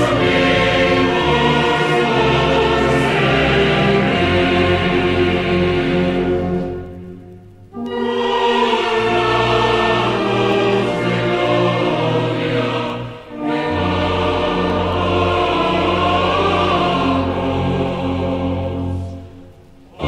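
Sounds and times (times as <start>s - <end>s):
choir singing with orchestra: 0.0s - 20.0s.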